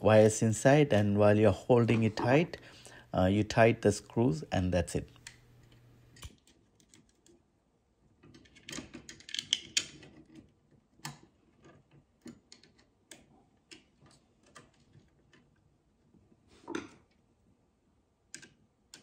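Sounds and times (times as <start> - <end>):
wires clicking and scraping: 5.1 - 7.4, 8.1 - 17.2.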